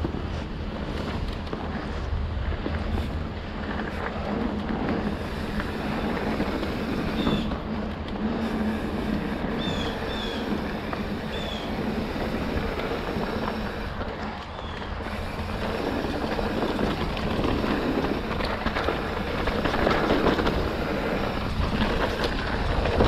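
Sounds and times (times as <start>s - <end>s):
bike rattling over bumps: 0.0s - 23.0s
tyres crunching over gravel: 0.0s - 23.0s.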